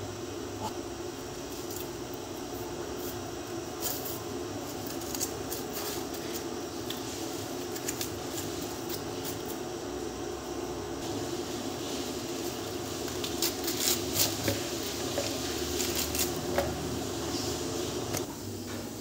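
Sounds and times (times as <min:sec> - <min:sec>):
steady background hum: 0:00.0 - 0:19.0
cabbage leaves snapping: 0:03.8 - 0:09.6, 0:13.0 - 0:14.7, 0:15.7 - 0:16.5.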